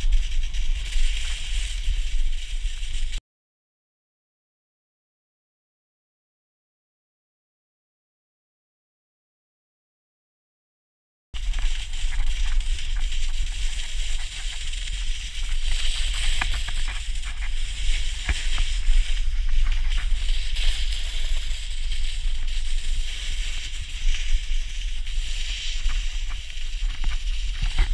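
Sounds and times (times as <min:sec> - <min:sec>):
snowboard scraping over snow: 0:00.0 - 0:03.2, 0:11.4 - 0:27.9.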